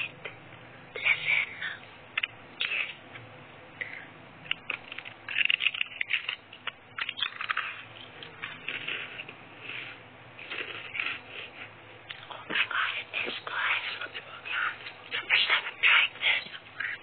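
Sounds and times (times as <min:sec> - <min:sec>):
crunching of crackers: 0:04.5 - 0:12.7.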